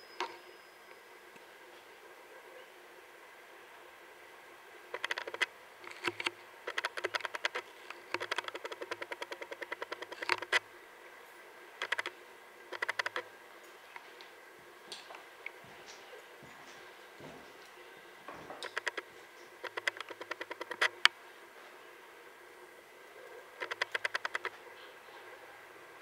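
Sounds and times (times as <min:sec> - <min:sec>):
rapid clicking: 0:04.9 - 0:10.6, 0:11.8 - 0:12.1, 0:12.7 - 0:13.2, 0:18.6 - 0:21.2, 0:23.6 - 0:24.5
ticks: 0:12.7 - 0:13.2, 0:18.6 - 0:21.2, 0:23.6 - 0:24.5.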